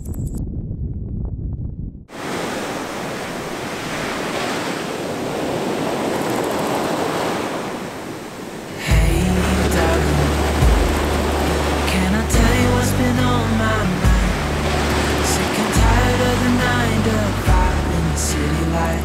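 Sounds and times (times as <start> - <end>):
short low rumble: 0.0 - 2.1
sea waves breaking on rocks: 2.1 - 19.0
music with deep bass: 8.9 - 19.0.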